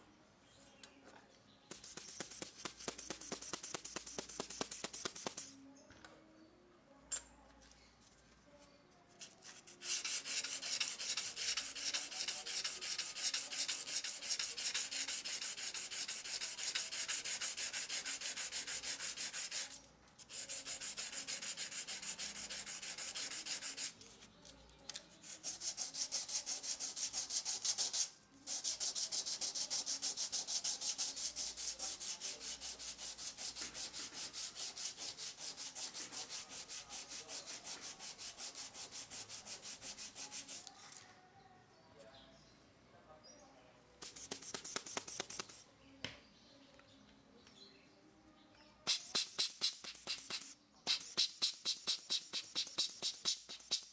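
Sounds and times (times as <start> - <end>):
sandpaper rubbing on metal: 1.7 - 5.6, 9.4 - 24.2, 25.1 - 40.7, 44.0 - 45.6, 48.9 - 53.9.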